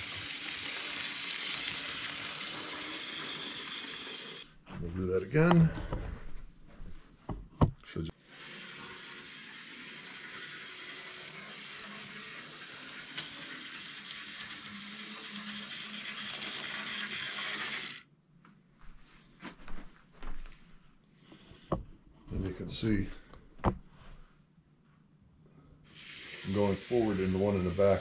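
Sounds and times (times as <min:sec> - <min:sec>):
model train motor whirring: 0:00.0 - 0:04.5, 0:08.2 - 0:18.0, 0:25.9 - 0:28.0.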